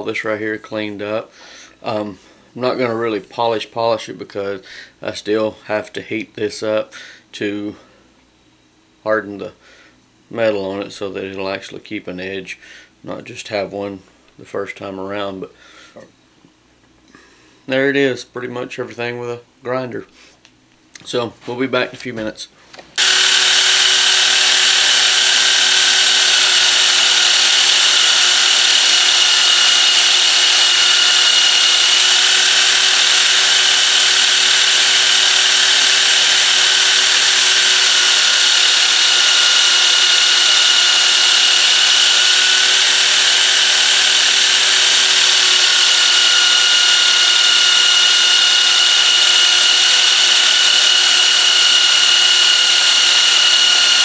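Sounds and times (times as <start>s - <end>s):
belt sander motor whine: 23.0s - 54.0s.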